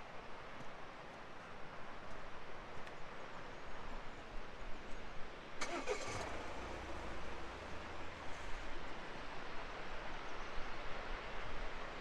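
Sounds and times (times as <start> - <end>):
low engine hum: 5.6 - 9.6.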